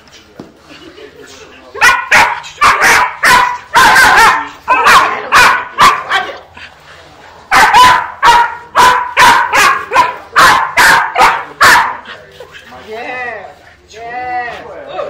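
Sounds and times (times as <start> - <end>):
young dog barking: 1.8 - 6.4, 7.5 - 12.1.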